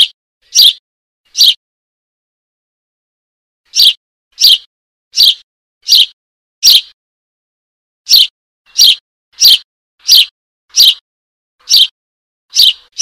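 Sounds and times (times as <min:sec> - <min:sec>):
sparrow fledgling begging chirps: 0:00.0 - 0:01.6, 0:03.7 - 0:07.0, 0:08.1 - 0:11.0, 0:11.6 - 0:13.0.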